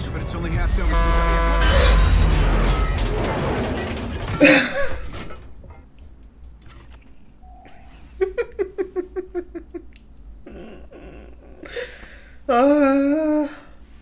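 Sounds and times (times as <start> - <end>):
woman laughing: 7.7 - 11.7.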